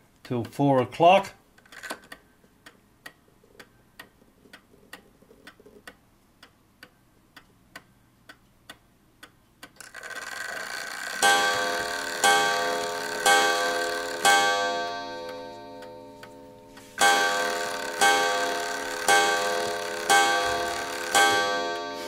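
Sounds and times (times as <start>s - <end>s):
clock ticking: 0.2s - 1.2s, 1.9s - 22.0s
clock gong striking: 11.2s - 22.0s.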